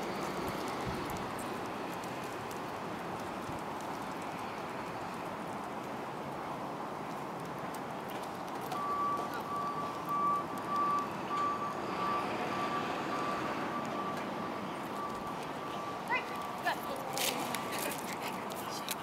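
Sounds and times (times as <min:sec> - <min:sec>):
outdoor background noise: 0:00.0 - 0:19.0
vehicle reversing alarm beeping: 0:08.6 - 0:18.2.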